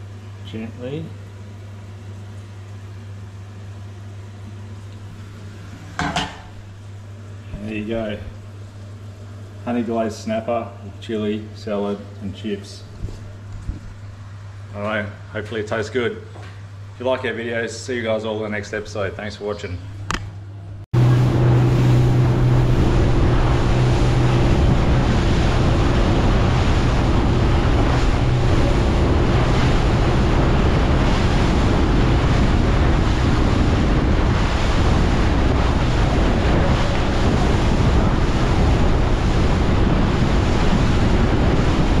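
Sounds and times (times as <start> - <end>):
low motor hum: 0.0 - 15.3, 19.9 - 42.0
water rushing from boat hull: 21.0 - 42.0
wind buffeting microphone: 21.0 - 42.0.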